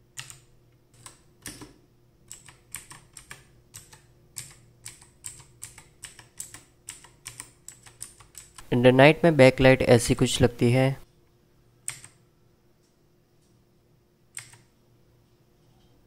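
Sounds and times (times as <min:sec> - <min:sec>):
mechanical keyboard clicks: 0:00.2 - 0:01.7, 0:02.3 - 0:08.7, 0:11.9 - 0:12.2, 0:14.3 - 0:14.7.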